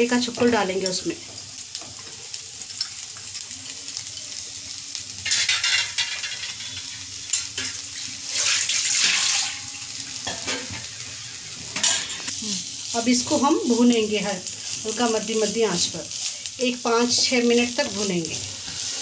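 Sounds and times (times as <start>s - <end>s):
onions sizzling in oil: 0.0s - 19.0s.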